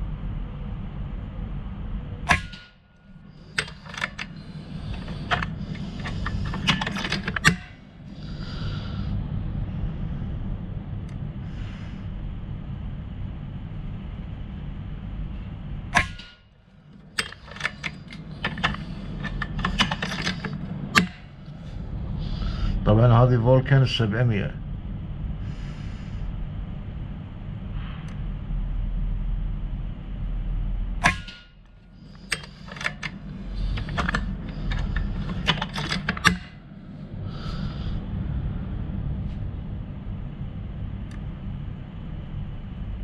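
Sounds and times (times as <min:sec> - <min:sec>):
low steady hum: 0:00.0 - 0:43.0
rifle mechanism clicks: 0:03.5 - 0:07.8, 0:17.0 - 0:21.3, 0:32.2 - 0:36.5.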